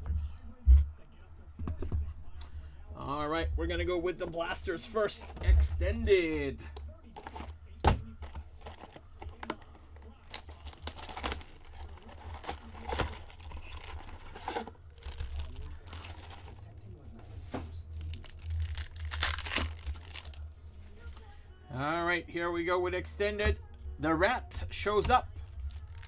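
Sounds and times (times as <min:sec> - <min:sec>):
plastic wrap crinkling: 0:08.2 - 0:16.7, 0:18.0 - 0:20.4, 0:25.5 - 0:26.0
card pack ripping open: 0:10.2 - 0:16.6, 0:18.0 - 0:20.4, 0:25.6 - 0:26.0
cardboard tearing: 0:10.3 - 0:16.6, 0:18.1 - 0:20.4.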